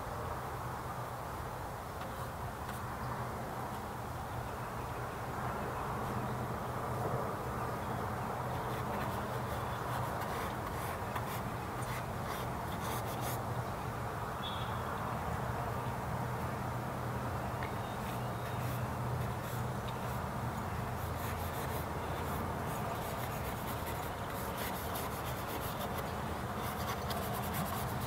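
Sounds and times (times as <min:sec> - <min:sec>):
paint brush dabbing on canvas: 0:21.0 - 0:28.0.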